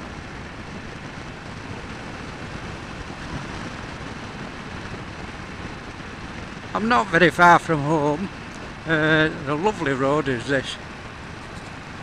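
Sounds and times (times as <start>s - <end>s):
wind noise on microphone: 0.0s - 6.8s
motorcycle engine running: 0.0s - 12.0s.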